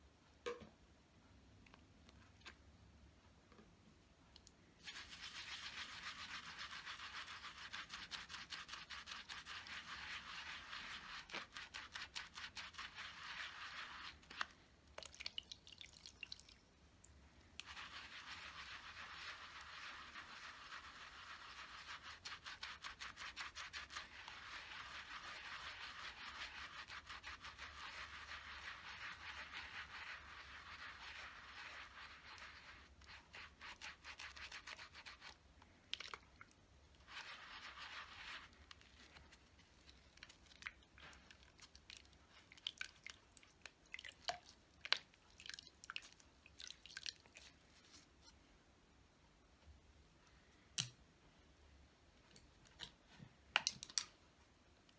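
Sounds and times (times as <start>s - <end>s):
brush scrubbing on cleaning pad: 4.8s - 14.5s, 17.6s - 35.4s, 37.0s - 39.9s.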